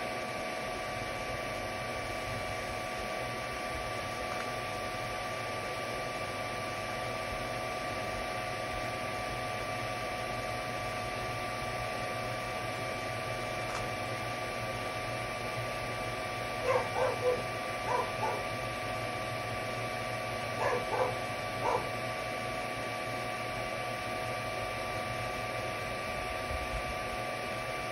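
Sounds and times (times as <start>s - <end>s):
three d printer fan hum: 0.0s - 27.9s
dog barking: 16.6s - 18.5s, 20.6s - 21.9s.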